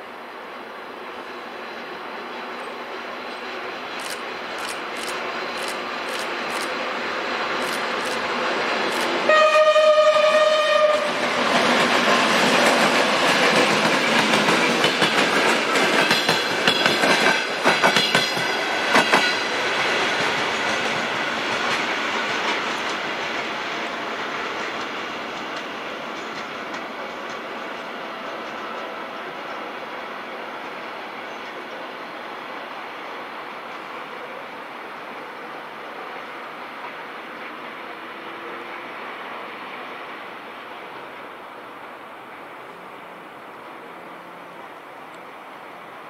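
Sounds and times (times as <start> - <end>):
train engine and running noise: 0.0 - 46.0
locomotive horn blast: 9.2 - 11.2.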